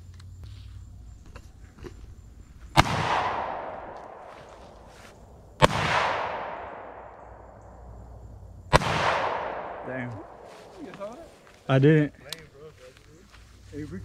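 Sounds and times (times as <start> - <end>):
rifle shots with echo: 2.8 - 4.3, 5.6 - 7.4, 8.7 - 10.5.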